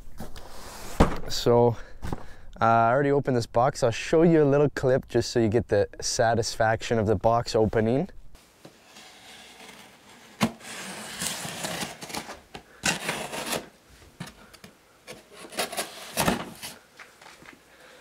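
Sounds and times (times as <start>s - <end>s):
knife slicing packing tape: 9.3s - 13.7s.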